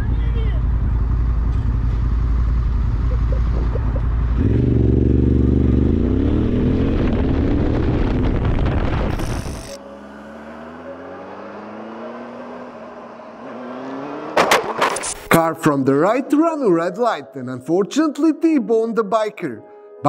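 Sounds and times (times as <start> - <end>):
quieter motorcycle engine accelerating: 0.0 - 8.7, 9.4 - 14.4
motorcycle engine accelerating: 0.0 - 15.0.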